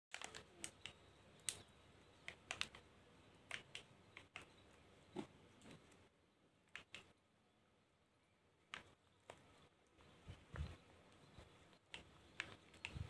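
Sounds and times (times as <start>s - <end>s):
faint clicks and taps: 0.1s - 7.2s, 8.7s - 13.0s.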